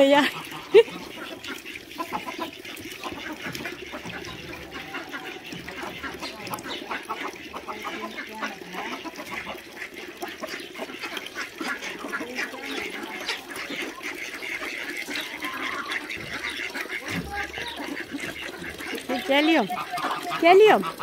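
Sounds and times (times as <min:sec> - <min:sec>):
poultry calling: 0:00.2 - 0:21.0.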